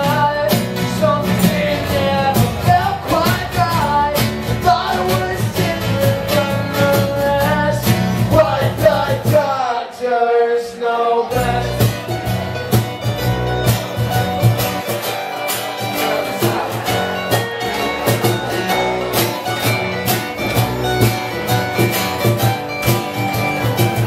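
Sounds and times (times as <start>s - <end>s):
cajon beat: 0.0s - 9.6s, 11.3s - 24.0s
bass: 0.0s - 9.7s, 11.3s - 24.0s
person singing: 0.0s - 12.2s
strummed acoustic guitars: 0.0s - 24.0s.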